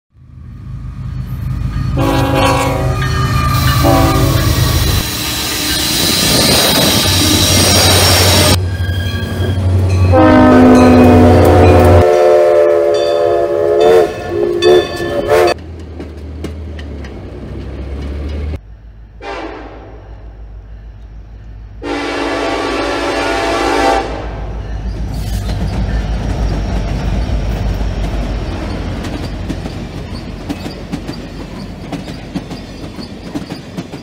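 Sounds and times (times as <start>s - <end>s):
locomotive rumbling past: 0.2s - 34.0s
locomotive air horn: 2.0s - 5.0s, 10.1s - 15.6s, 19.2s - 20.2s, 21.8s - 24.6s.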